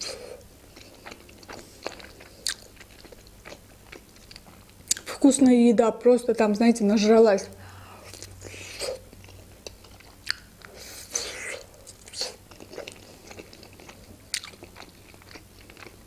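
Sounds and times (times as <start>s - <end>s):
person chewing: 0.0s - 5.2s, 7.9s - 16.0s
mouth smacks and clicks: 8.1s - 13.0s.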